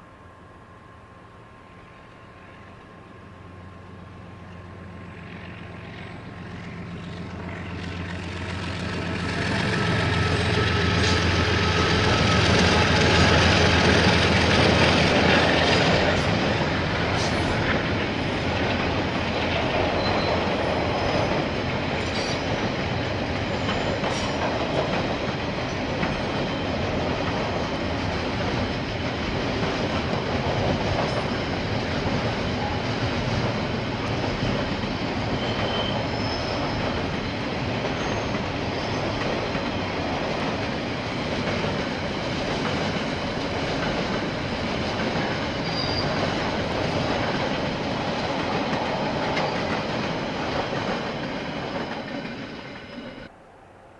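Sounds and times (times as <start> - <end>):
locomotive engine hum: 0.0 - 53.9
high wheel squeals: 2.0 - 14.2, 19.6 - 24.5, 34.0 - 39.8, 45.4 - 46.6, 49.0 - 53.3
wheels clicking over rail joints: 5.8 - 53.0.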